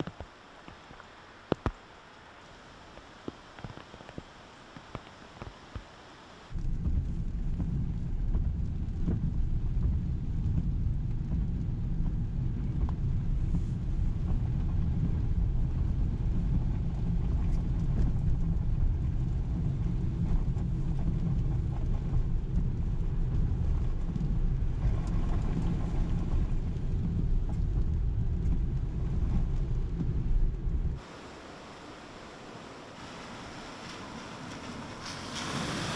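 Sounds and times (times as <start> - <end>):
car passing with spray swish: 31.0 - 35.9.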